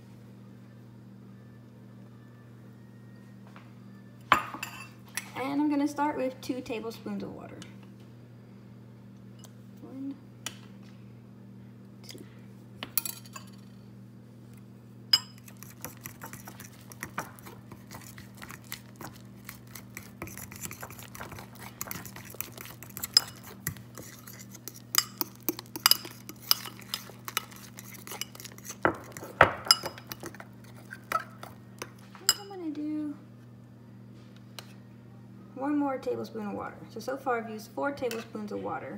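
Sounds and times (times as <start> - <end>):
fork scraping ceramic bowl: 15.2 - 31.6.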